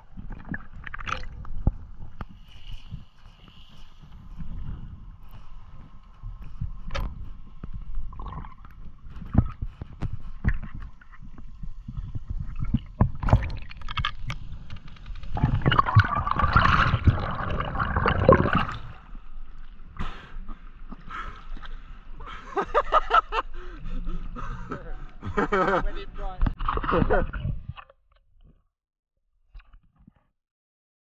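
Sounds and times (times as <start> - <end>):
low underwater rumble: 4.0 - 20.0
muffled underwater knocks and thumps: 6.4 - 18.7.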